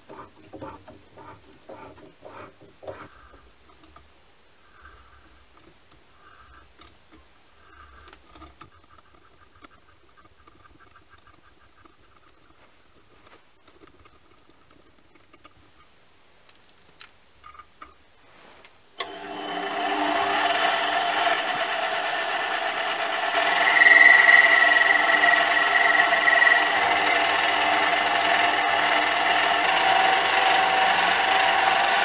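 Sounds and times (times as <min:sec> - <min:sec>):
lathe whining: 0:00.0 - 0:03.4, 0:19.0 - 0:32.0
drill bit boring into metal: 0:19.0 - 0:32.0.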